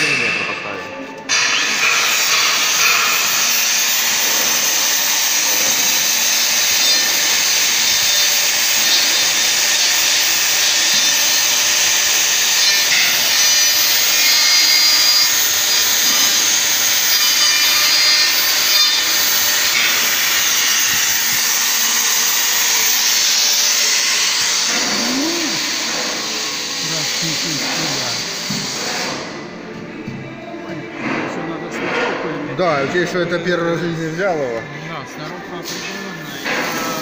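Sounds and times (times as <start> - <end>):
edge milling machine cutting steel: 1.3 - 29.4, 35.5 - 37.0.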